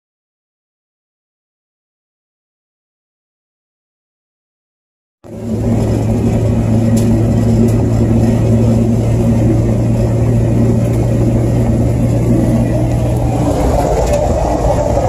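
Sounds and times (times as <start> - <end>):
car engine drone: 5.2 - 15.0
road rumble: 5.2 - 15.0.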